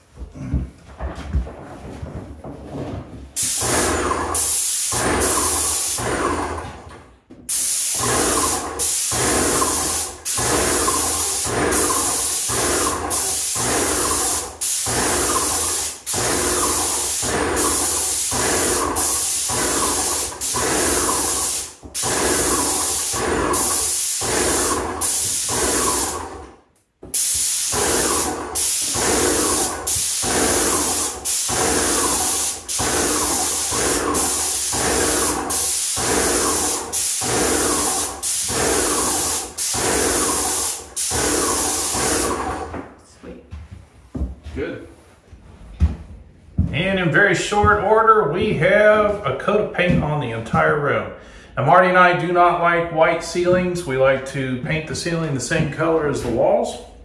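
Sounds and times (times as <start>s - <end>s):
paint sprayer hissing: 3.4s - 6.8s, 7.5s - 42.8s.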